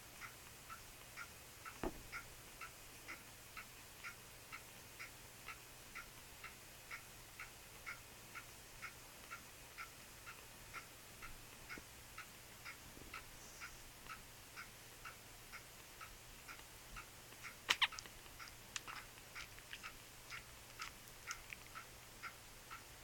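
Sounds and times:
clock ticking: 0.0s - 23.0s
puppies squeaking: 17.7s - 18.1s.

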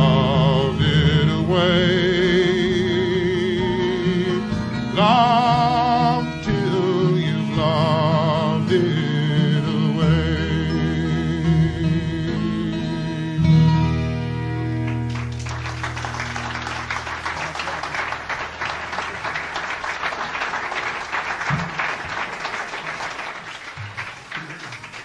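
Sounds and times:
audience applauding: 14.8s - 25.0s.

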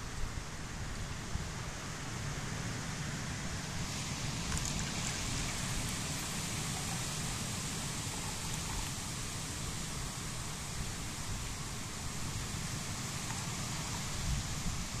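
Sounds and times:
tea pouring into plastic cup: 3.9s - 9.3s, 13.1s - 14.2s.

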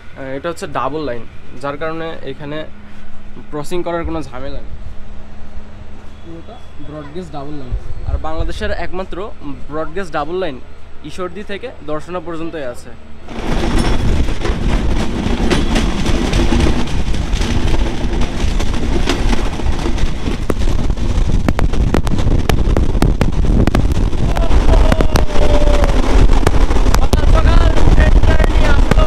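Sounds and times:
train wheels rumbling on rails: 13.2s - 29.0s
wheels clicking and knocking: 13.3s - 29.0s.

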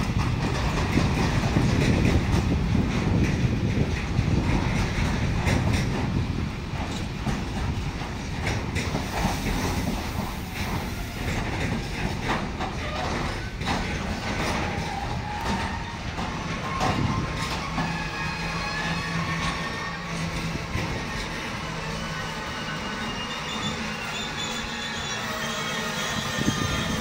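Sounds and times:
train low rumble: 0.0s - 27.0s
train wheels clacking on rails: 0.0s - 27.0s
wheels squealing: 8.8s - 27.0s.

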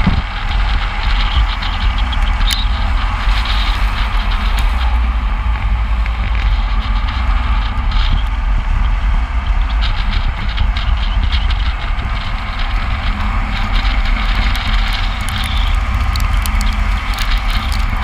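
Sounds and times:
low rumble of road noise: 0.0s - 18.0s
wind buffeting microphone: 0.0s - 18.0s.

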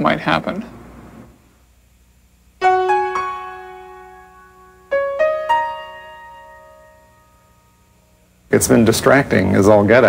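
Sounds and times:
piano notes ringing: 2.6s - 8.4s.

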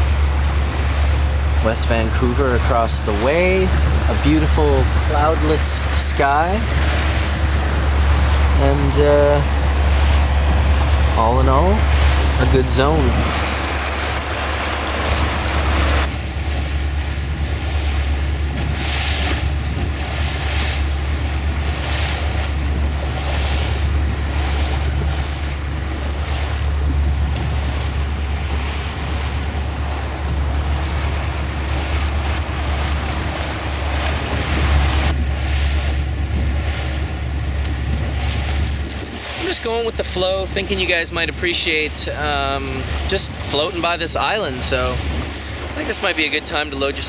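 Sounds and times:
motorboat engine hum: 0.0s - 47.0s
water splashing along hull: 0.0s - 47.0s
wind on microphone: 0.0s - 47.0s.

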